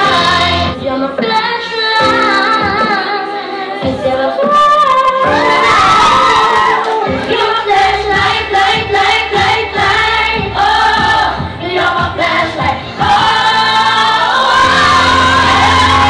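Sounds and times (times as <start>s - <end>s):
women singing together: 0.0s - 16.0s
music with steady beat: 3.8s - 16.0s.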